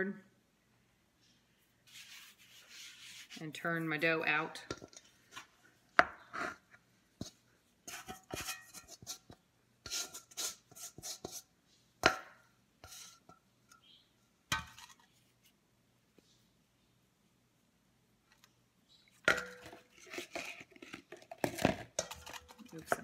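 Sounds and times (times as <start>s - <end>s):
spatula tapping metal bowl: 22.0s - 23.0s.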